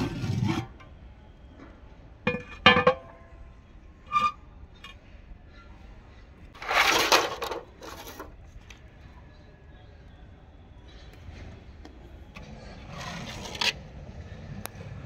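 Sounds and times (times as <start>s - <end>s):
rough scraping: 0.0s - 0.8s, 6.6s - 8.3s, 12.4s - 13.9s.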